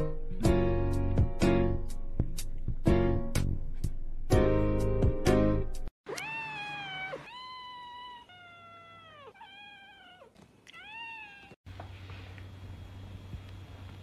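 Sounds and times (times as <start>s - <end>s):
cat meowing: 6.1s - 11.6s.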